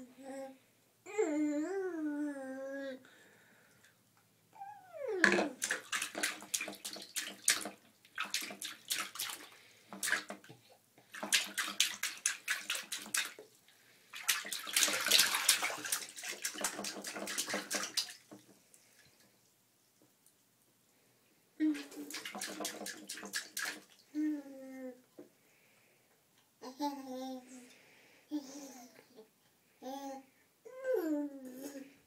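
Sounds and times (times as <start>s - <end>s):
bathwater splashing: 5.2s - 10.5s, 11.1s - 19.2s, 21.6s - 24.1s.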